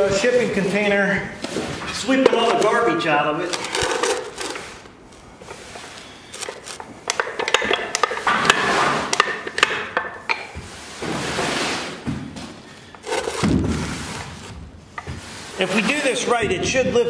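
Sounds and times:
scraping and crunching: 0.0 - 10.0, 12.8 - 16.8
metal clinks and knocks: 6.4 - 10.5.

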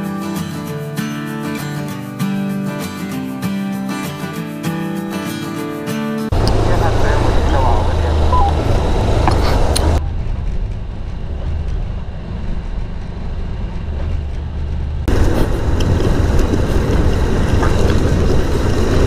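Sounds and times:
motorcycle engine running: 6.3 - 19.0
wind rumble on microphone: 6.4 - 19.0.

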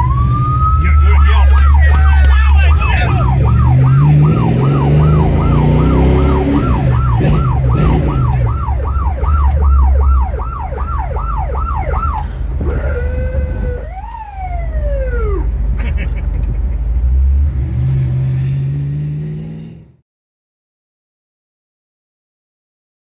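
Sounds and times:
siren yelping and wailing: 0.0 - 15.6
car engine revving: 0.0 - 20.0.

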